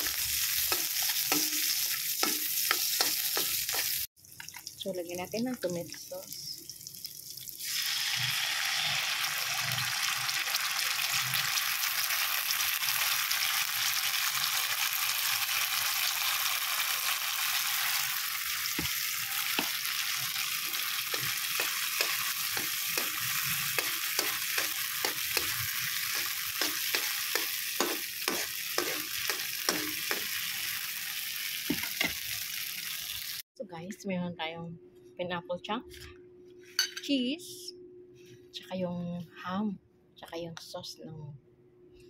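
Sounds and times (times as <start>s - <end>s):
sauce sizzling in oil: 0.0s - 4.8s, 6.2s - 33.4s.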